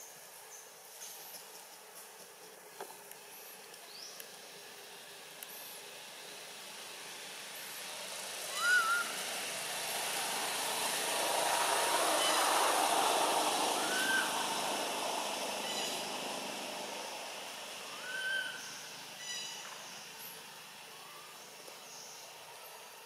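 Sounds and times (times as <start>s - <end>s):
background noise wash: 0.0s - 23.0s
baby monkey squealing: 8.5s - 9.1s, 13.8s - 14.3s.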